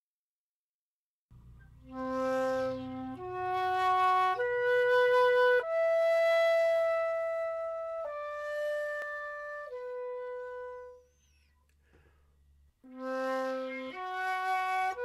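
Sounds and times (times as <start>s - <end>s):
flute playing long notes: 1.8s - 11.5s, 12.9s - 15.0s.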